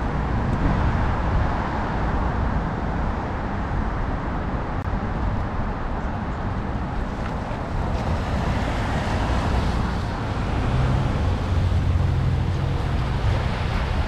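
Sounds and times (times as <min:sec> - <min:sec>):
low traffic rumble: 0:00.0 - 0:14.0
vehicle engine hum: 0:00.0 - 0:14.0
wind buffeting microphone: 0:00.0 - 0:14.0.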